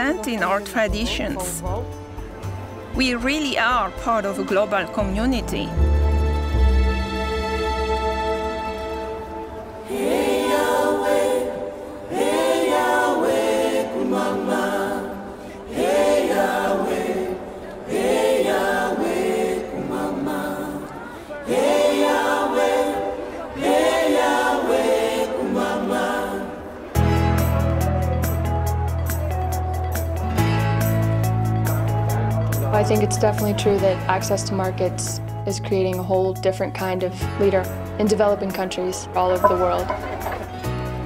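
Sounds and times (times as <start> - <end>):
group singing a cappella: 9.8 - 27.1.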